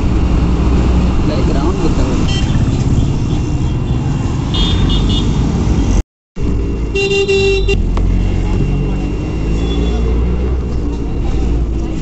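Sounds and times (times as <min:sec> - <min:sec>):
road and traffic noise: 0:00.0 - 0:12.0
vehicle horn honking: 0:06.9 - 0:07.8.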